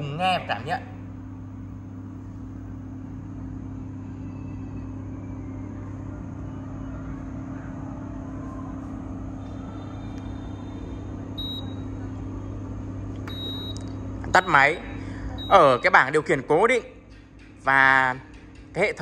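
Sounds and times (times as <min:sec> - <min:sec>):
air fryer fan whir: 0:00.0 - 0:19.0
low even hum: 0:00.0 - 0:19.0.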